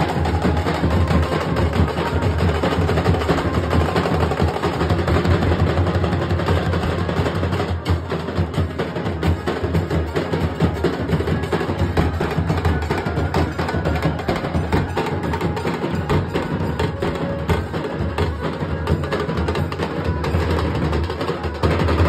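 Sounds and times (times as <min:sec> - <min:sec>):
dhol drums beaten with sticks: 0:00.0 - 0:22.0.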